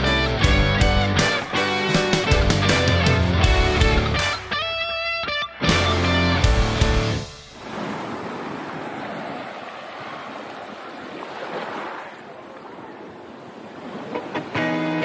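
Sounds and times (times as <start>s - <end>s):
waves on a pebble beach: 7.5s - 15.0s.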